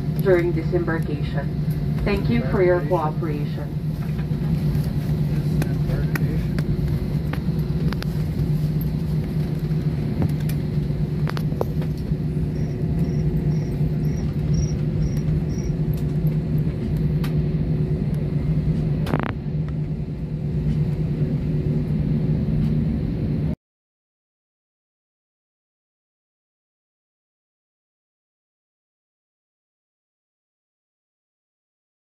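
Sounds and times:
airliner cabin hum: 0.0 - 23.6
jet engine rumble: 0.0 - 23.6.

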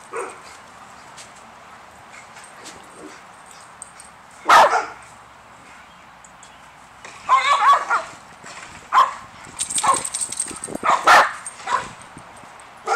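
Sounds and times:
dogs barking: 4.4 - 5.0, 7.3 - 8.1, 8.9 - 10.1, 10.8 - 12.0.

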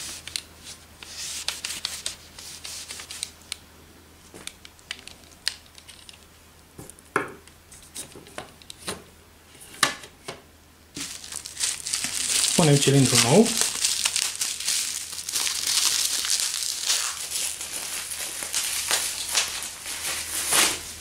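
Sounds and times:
cloth rubbing on plastic: 16.4 - 21.0.

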